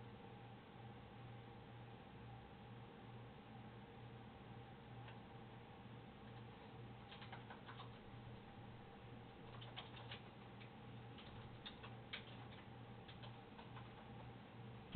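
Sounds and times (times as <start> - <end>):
low steady hum: 0.0 - 14.9
light clicks and ticks: 9.4 - 14.3.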